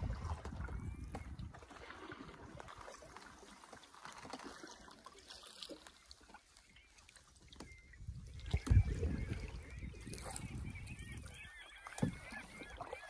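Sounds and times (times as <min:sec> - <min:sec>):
faint water lapping: 0:00.0 - 0:13.0
small knocks on a hull: 0:11.9 - 0:12.5.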